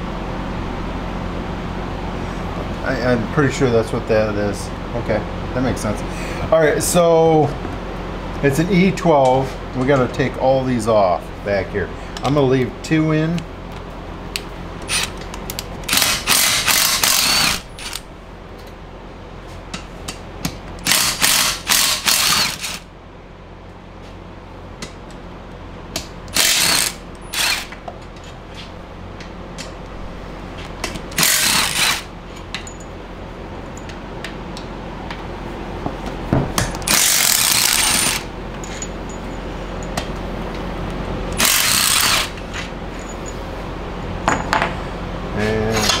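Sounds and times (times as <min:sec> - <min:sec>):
ratchet wrench clicking: 0:15.9 - 0:18.0, 0:26.3 - 0:27.8, 0:31.2 - 0:32.1, 0:36.8 - 0:38.2, 0:41.4 - 0:42.3.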